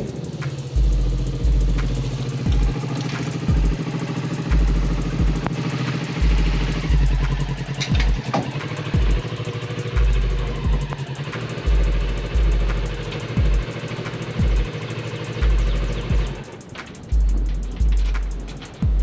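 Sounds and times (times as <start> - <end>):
deep bass thumps: 0.0 - 3.8, 4.5 - 5.6, 6.2 - 9.3, 10.0 - 11.0, 11.7 - 13.8, 14.4 - 14.8, 15.4 - 16.4, 17.1 - 19.0
motorcycle engine idling: 0.0 - 19.0.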